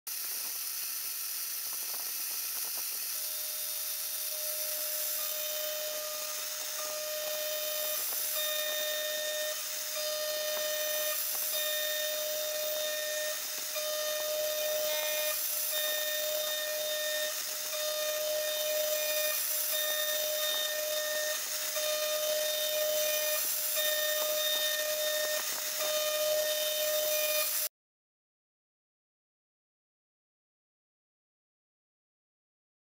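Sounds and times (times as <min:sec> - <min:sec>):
end mill cutting metal whine: 0:00.1 - 0:27.7
router spindle hiss: 0:00.1 - 0:27.7.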